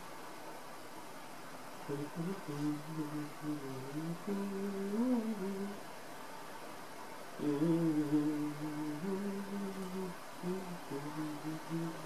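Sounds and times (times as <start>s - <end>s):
man humming: 7.4s - 12.0s.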